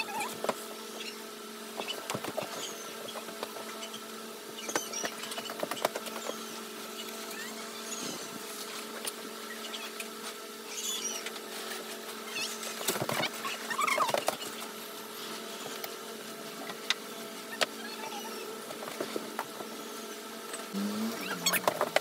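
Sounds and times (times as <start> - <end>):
steady hum: 14.2 - 22.0.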